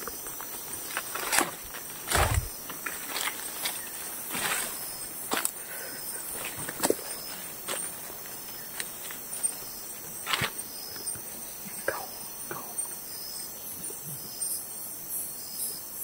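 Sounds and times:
footsteps on forest floor: 0:00.0 - 0:10.6
insect chirp: 0:00.0 - 0:16.0
insects buzzing: 0:00.0 - 0:16.0.

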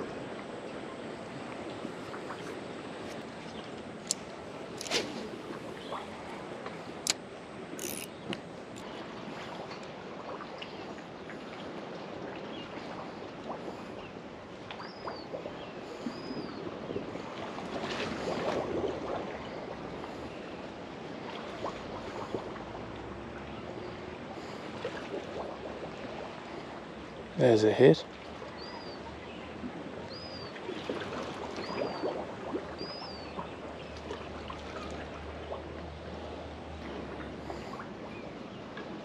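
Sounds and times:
water lapping and sloshing: 0:00.0 - 0:39.0
sharp clicks: 0:07.8 - 0:08.4.

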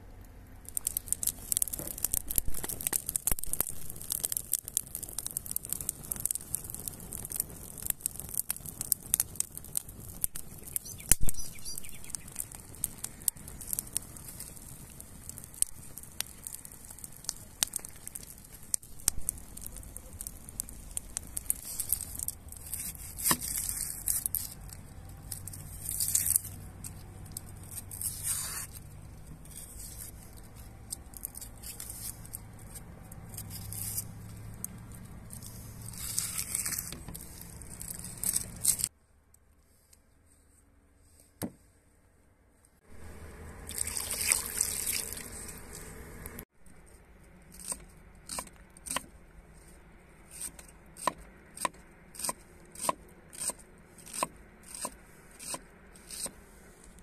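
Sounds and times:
onion skin rustling: 0:00.7 - 0:38.9
knife cutting and scraping onion: 0:21.4 - 0:34.2, 0:35.3 - 0:38.9, 0:46.8 - 0:57.0.

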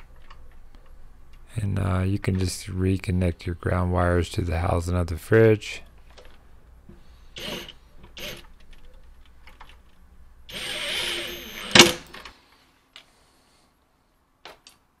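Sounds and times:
cordless drill driving screw: 0:07.4 - 0:08.5, 0:10.5 - 0:12.0.

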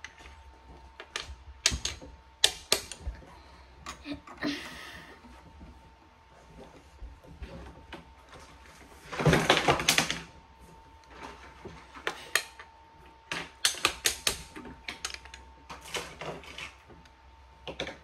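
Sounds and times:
plastic toy bricks clicking: 0:13.6 - 0:15.4.

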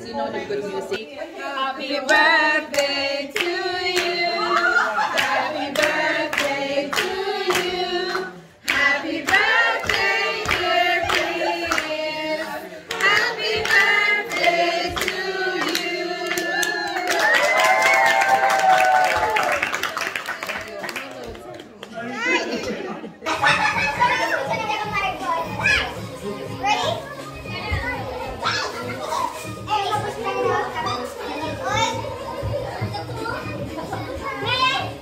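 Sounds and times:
group of people singing: 0:01.2 - 0:17.5
rhythmic hand clapping: 0:02.0 - 0:21.9.

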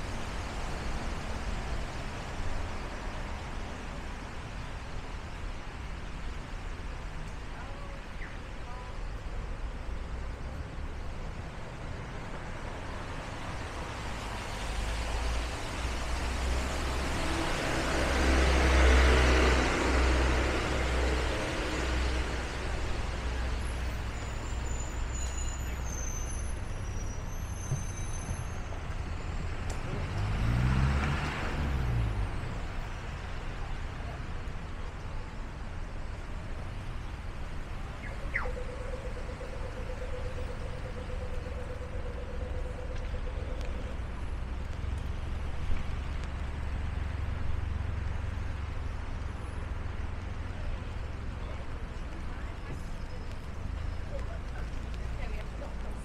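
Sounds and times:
traffic hiss on wet street: 0:00.0 - 0:56.0
vehicle passing: 0:29.9 - 0:32.8.

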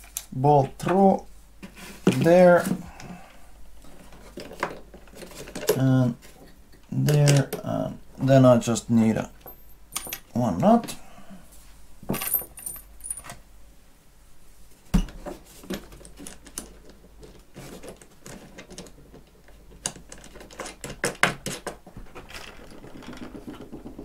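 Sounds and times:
small clicks and knocks of parts: 0:03.8 - 0:07.7, 0:09.4 - 0:11.0, 0:15.7 - 0:24.0.

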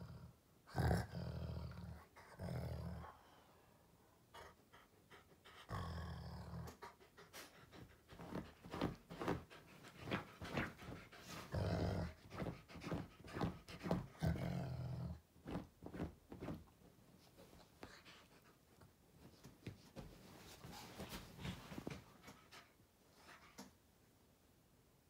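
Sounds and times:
dog growling: 0:00.0 - 0:03.2, 0:05.6 - 0:07.0, 0:10.5 - 0:12.5, 0:13.4 - 0:15.2
dog panting: 0:04.3 - 0:05.8, 0:06.7 - 0:14.2.

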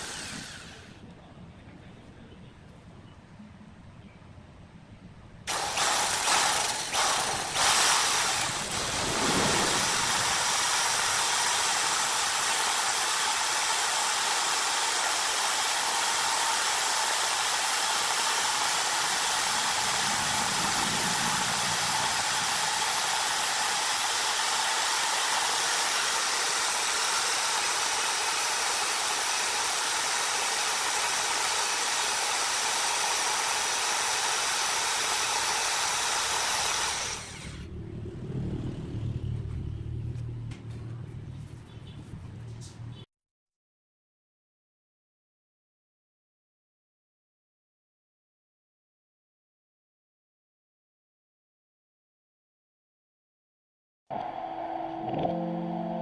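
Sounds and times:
electric drill boring into wood: 0:00.0 - 0:01.0, 0:05.5 - 0:37.7.

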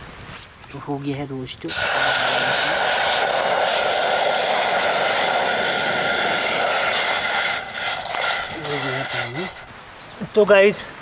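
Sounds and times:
water pouring into saucepan: 0:01.7 - 0:09.7.

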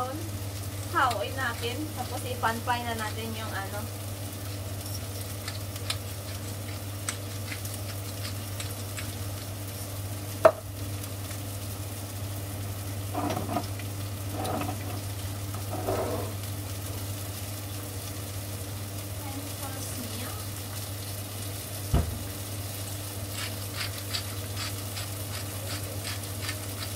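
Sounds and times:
onions sizzling in a pan: 0:00.0 - 0:26.9
pepper grinder ticks: 0:05.4 - 0:09.2, 0:23.4 - 0:26.9.

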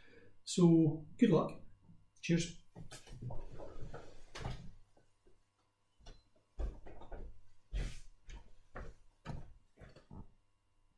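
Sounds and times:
footsteps thudding: 0:06.5 - 0:10.4.

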